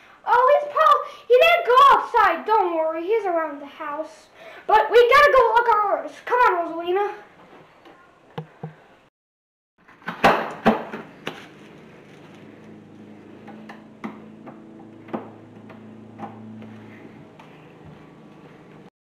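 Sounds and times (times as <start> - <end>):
steady low hum: 11.0 - 18.9.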